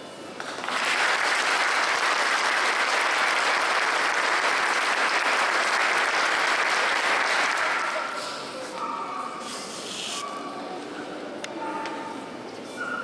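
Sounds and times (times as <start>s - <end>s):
crowd applauding: 0.4s - 8.2s.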